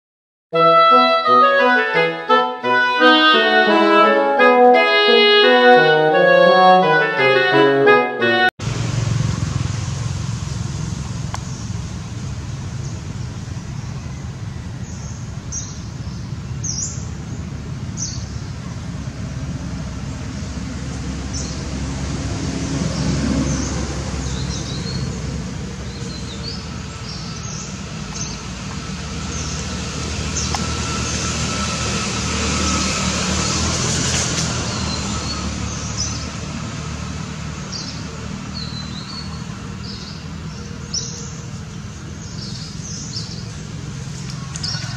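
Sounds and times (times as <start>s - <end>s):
steady low rumble: 8.6s - 32.6s
small birds chirping: 12.7s - 19.0s.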